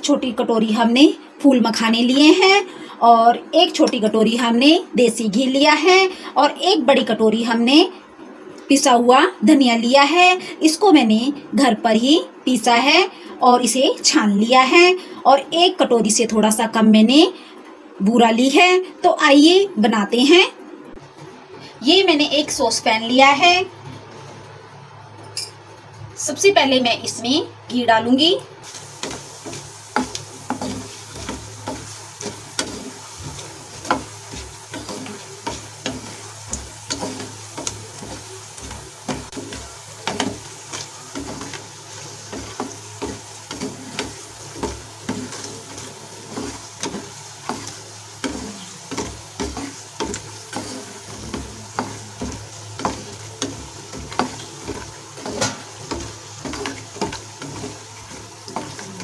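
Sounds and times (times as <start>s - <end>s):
faint frying sizzle: 0.0s - 59.0s
wooden spatula scraping a pan: 28.6s - 59.0s.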